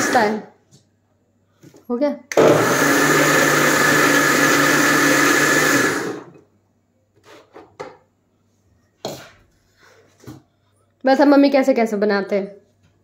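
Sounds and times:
mixer grinder running: 0.0 - 0.4, 2.3 - 6.4.

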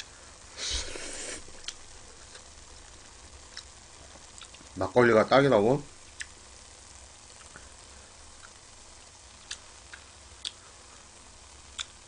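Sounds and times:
person chewing noodles: 0.6 - 2.4, 9.4 - 10.6.

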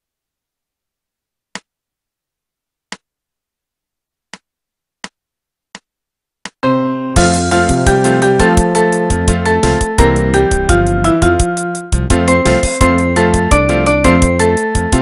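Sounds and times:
held chord: 6.6 - 15.0.

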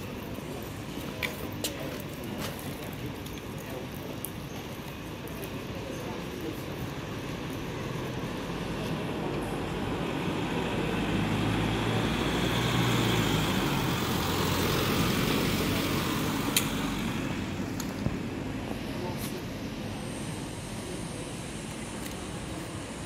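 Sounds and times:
vehicle driving past: 7.8 - 17.8.

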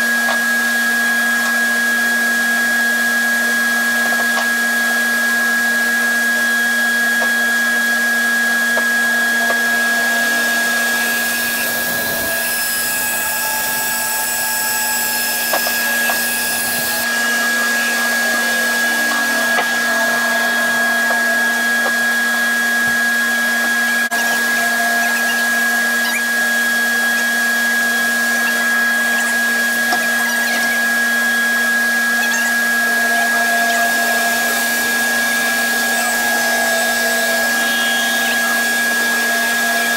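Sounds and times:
bandsaw humming and whining: 0.0 - 39.9.

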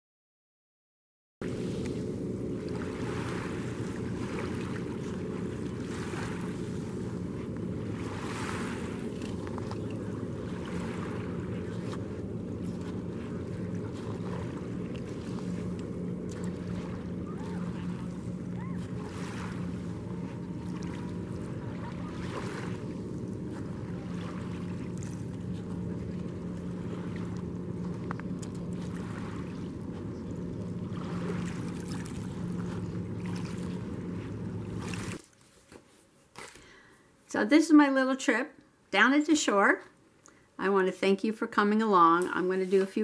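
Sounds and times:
low engine drone: 1.4 - 35.2.

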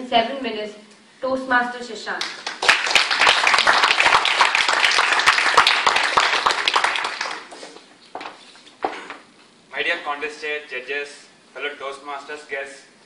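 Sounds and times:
single hand clap: 2.2 - 7.6
audience applauding: 2.2 - 7.8.

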